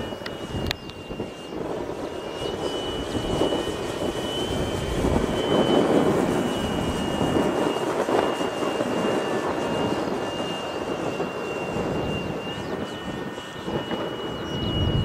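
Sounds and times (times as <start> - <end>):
model airplane motor whine: 0.0 - 15.0
rushing air noise: 14.4 - 15.0.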